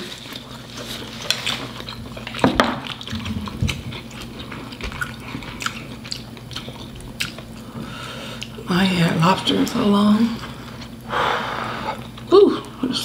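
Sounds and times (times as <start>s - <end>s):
wet eating smacks and clicks: 1.2s - 7.6s.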